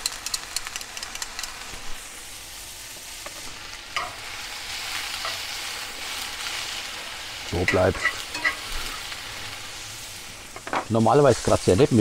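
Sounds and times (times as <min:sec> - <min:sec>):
onion rings sizzling in butter: 0:00.0 - 0:12.0
metal tongs scraping pan: 0:07.6 - 0:09.0.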